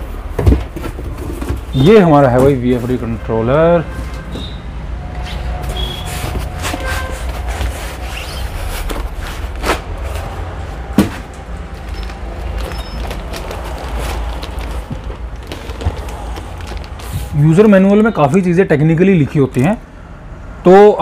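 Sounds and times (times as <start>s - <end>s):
foam and plastic wrap rustling: 5.6s - 18.4s.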